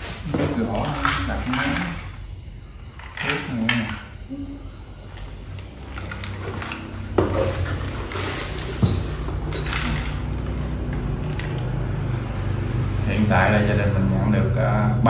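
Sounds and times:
boxes knocking on tile floor: 6.4 - 11.8.

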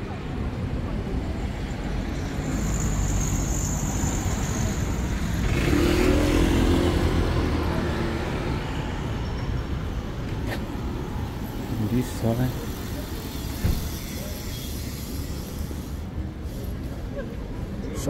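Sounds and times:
street traffic rumble: 0.0 - 18.0
vehicle passing close by: 5.1 - 8.6.

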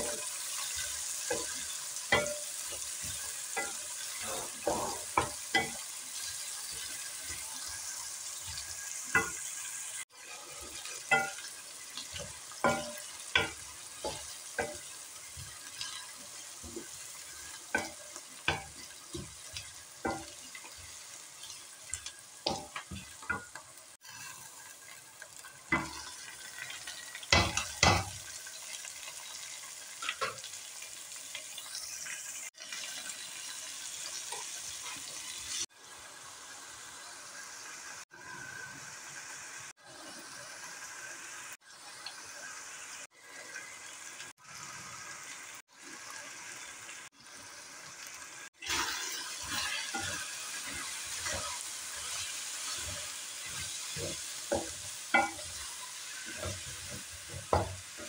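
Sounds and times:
wooden spatula scraping a wok: 0.0 - 25.0, 48.6 - 58.0
onions sizzling in oil: 0.0 - 58.0.

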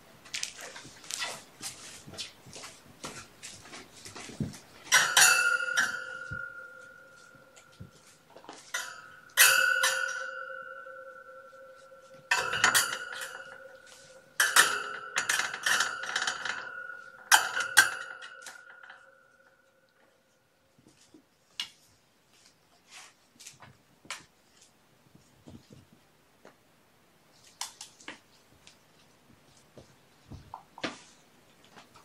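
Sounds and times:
metal ringing two-pitched tone: 4.9 - 19.9
metal object knocking and rattling: 12.3 - 13.6, 14.4 - 19.1.

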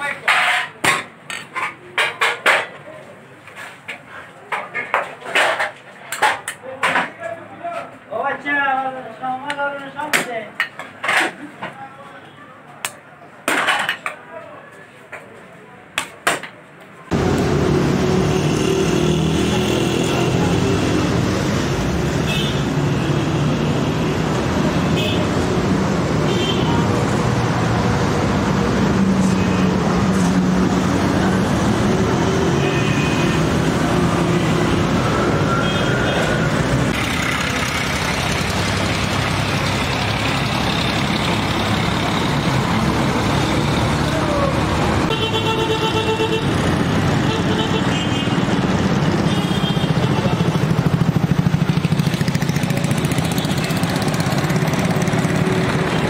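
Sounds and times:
voices: 0.0 - 17.1, 39.4 - 46.4
vehicle engines running: 17.1 - 56.0.

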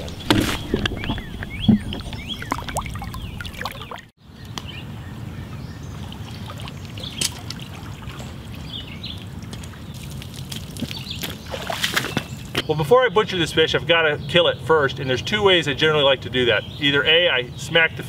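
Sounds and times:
water trickling and sloshing: 0.0 - 4.1, 5.7 - 12.6
small birds chirping: 0.0 - 18.0.

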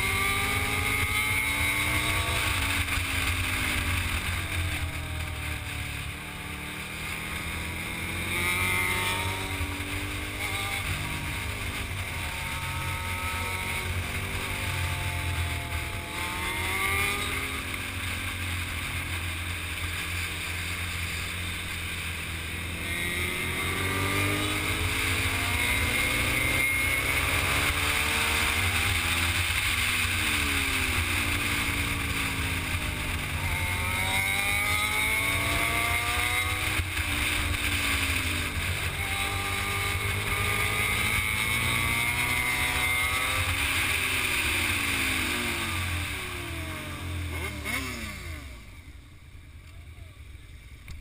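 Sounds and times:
motorcycle engine revving: 0.0 - 51.0.

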